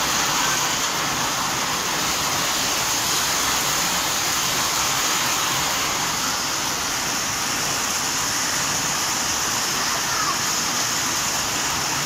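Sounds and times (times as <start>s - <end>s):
rain falling: 0.0s - 12.0s.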